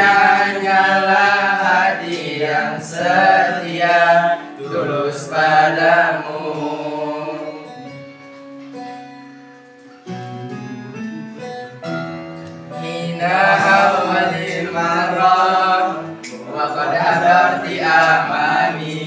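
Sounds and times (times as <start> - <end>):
boys singing together: 0.0 - 8.0, 12.7 - 19.0.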